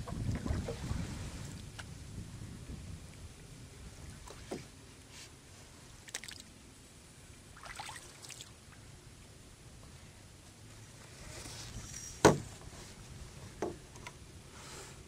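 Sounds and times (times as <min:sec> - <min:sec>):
paddle splashes and drips: 0:05.9 - 0:06.6, 0:07.3 - 0:08.9.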